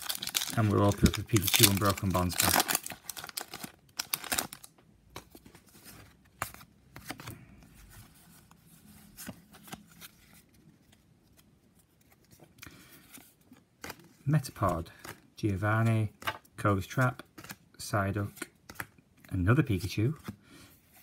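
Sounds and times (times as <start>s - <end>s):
foil wrapper rustling: 0.0s - 4.7s.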